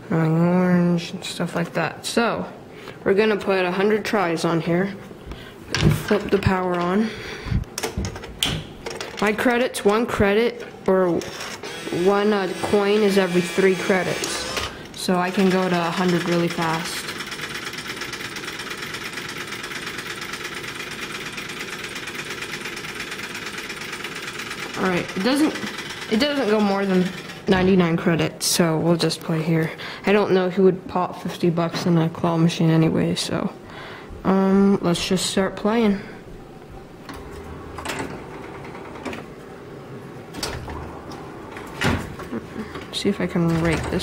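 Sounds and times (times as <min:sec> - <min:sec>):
claw machine clicking clatter: 0:10.8 - 0:27.5.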